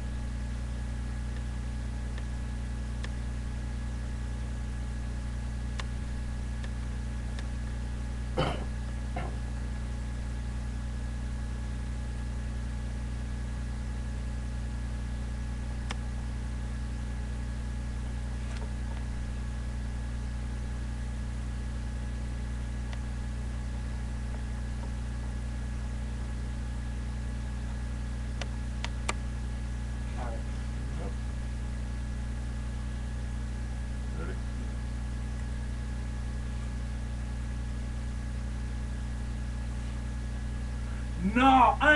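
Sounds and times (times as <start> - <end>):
low equipment hum: 0.0 - 41.9
faint high whine: 30.0 - 34.9.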